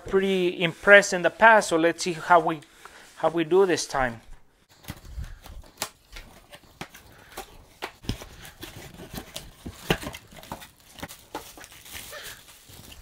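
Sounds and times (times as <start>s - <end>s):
plastic wrapping rustling: 4.1s - 13.0s
cardboard box being unpacked: 4.7s - 13.0s.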